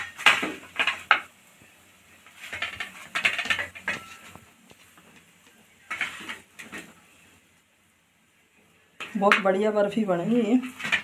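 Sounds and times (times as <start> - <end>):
metal spoon scraping and patting: 2.2 - 5.2, 5.8 - 7.0, 10.3 - 11.0.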